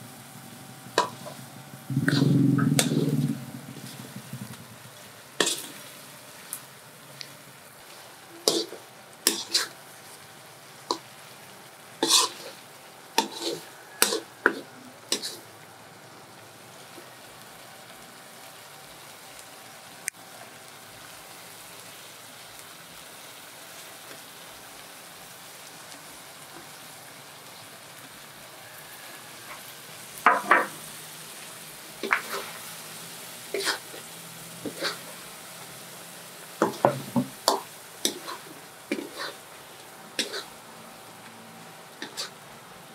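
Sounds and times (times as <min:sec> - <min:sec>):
curry sizzling: 0:00.0 - 0:42.9
metal spatula scraping a wok: 0:00.8 - 0:06.7, 0:07.8 - 0:10.2, 0:12.0 - 0:15.4, 0:32.0 - 0:32.7, 0:33.5 - 0:35.2, 0:36.6 - 0:39.5, 0:40.2 - 0:40.6, 0:42.0 - 0:42.4.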